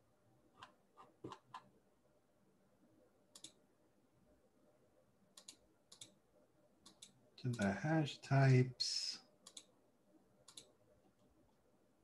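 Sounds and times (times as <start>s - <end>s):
computer mouse clicking: 3.3s - 3.6s, 5.3s - 6.2s, 6.8s - 7.8s, 9.4s - 9.7s, 10.4s - 10.8s.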